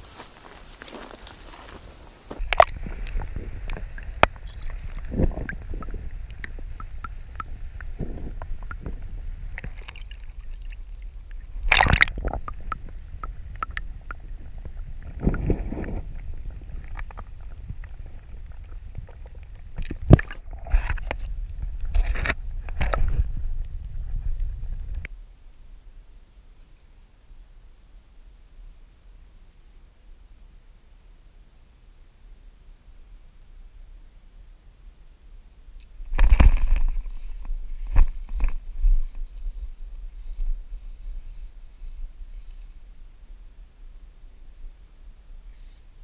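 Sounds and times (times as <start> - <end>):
water sloshing and gurgling: 2.4 - 23.2
low rumble: 2.4 - 25.1
sharp knocks and splashes: 11.6 - 12.8, 19.8 - 20.6.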